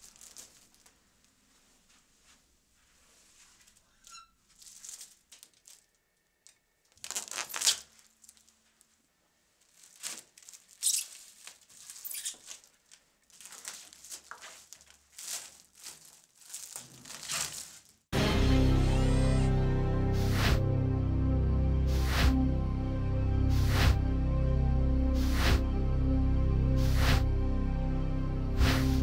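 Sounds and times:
plastic stretch film crinkling: 0.0s - 18.1s.

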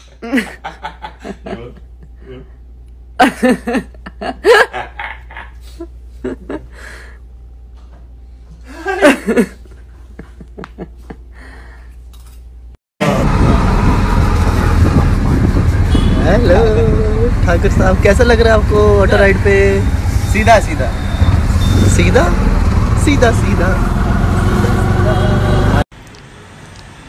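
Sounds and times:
people laughing: 0.2s - 2.4s, 3.2s - 6.8s, 8.7s - 11.2s
loud traffic noise: 13.0s - 27.0s.

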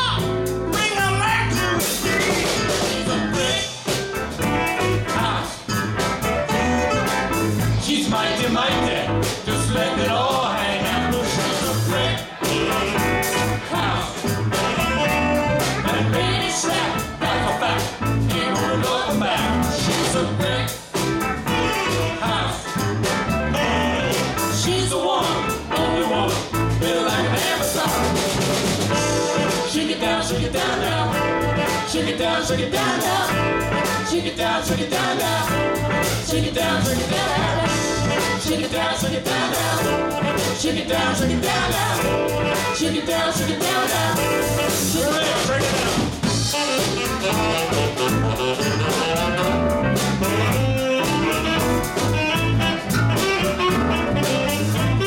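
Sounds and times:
live rock band playing: 0.0s - 55.0s
woman singing lead: 29.0s - 45.5s.

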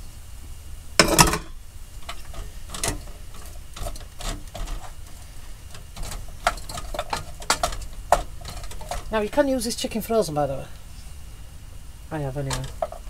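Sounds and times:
chicken pieces clattering into pan: 1.0s - 5.0s.

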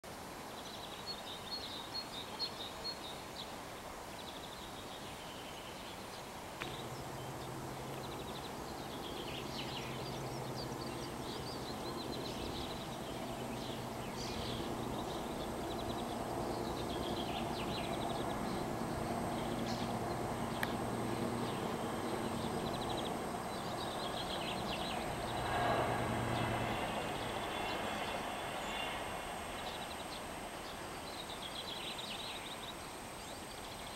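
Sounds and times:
birds chirping and trilling: 4.3s - 33.9s
low steady drone: 6.6s - 33.3s.

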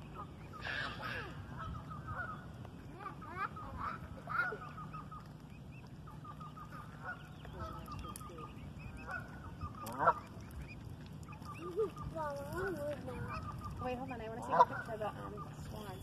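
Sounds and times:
waterfowl calling: 0.0s - 16.0s.

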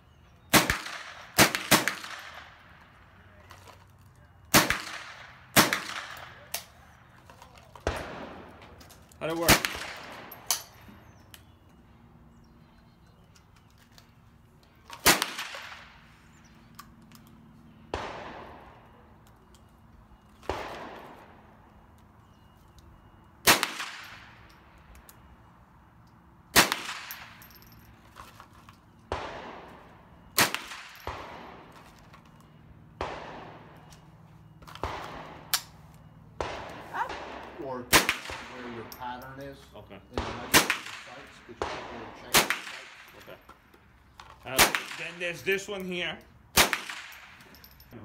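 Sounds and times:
gunshots with echo: 17.9s - 19.0s, 20.5s - 21.5s, 29.1s - 31.7s, 33.0s - 33.8s, 36.4s - 39.2s, 40.1s - 43.3s.

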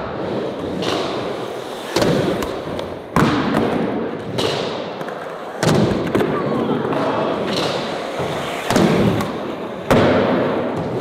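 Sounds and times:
skateboard wheels rolling on pavement: 4.9s - 11.0s
skateboard thuds: 6.9s - 11.0s.

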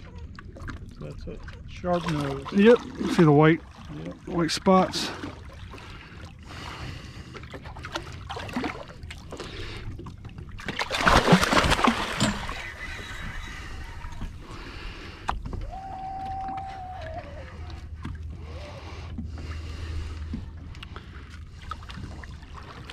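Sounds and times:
water sloshing against boat hull: 0.0s - 22.9s
water splash: 10.6s - 12.9s.

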